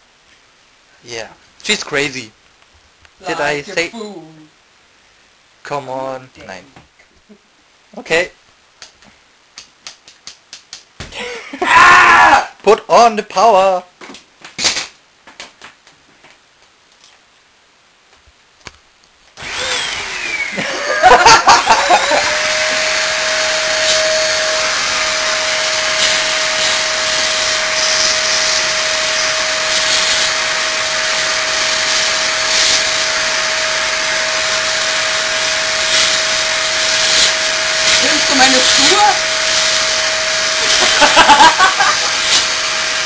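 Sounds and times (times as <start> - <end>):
hot-air blower running: 19.4 - 43.0.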